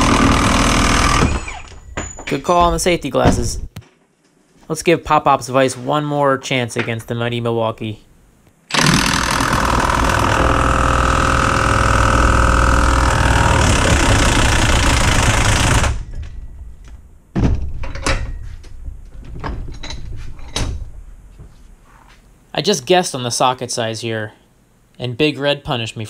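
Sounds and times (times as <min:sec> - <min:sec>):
impact wrench hammering: 0:00.0 - 0:03.5, 0:08.7 - 0:16.4
metal clanks: 0:01.1 - 0:04.0, 0:15.8 - 0:21.0.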